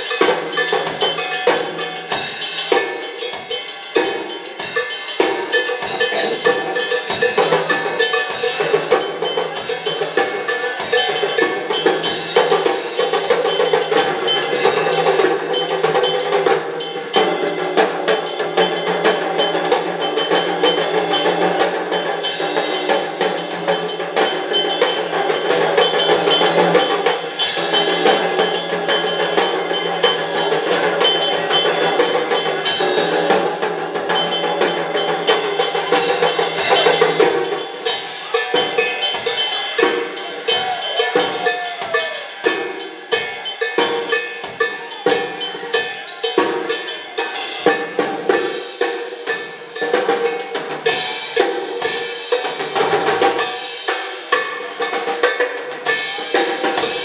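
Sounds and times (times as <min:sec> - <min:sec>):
rock drum solo: 0:00.0 - 0:57.0.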